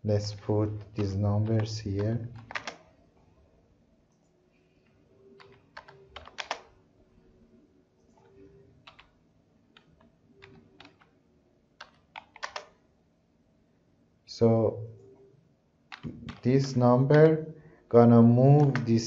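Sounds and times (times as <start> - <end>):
computer keyboard typing: 0.3 - 2.9, 5.3 - 6.7, 8.0 - 11.2, 11.8 - 12.8, 15.9 - 17.4, 18.5 - 19.0.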